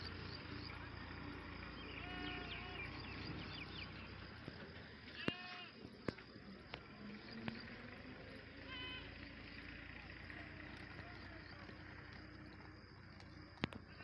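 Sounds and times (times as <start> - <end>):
goats bleating: 1.9 - 3.0, 5.1 - 5.8, 8.7 - 9.1
sharp clicks: 10.6 - 14.0.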